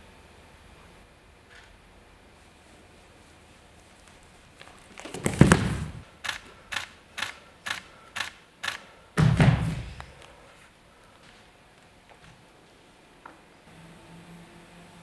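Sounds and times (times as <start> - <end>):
heavy thump: 5.2 - 6.0, 9.2 - 10.0
sharp clicks: 6.2 - 8.9.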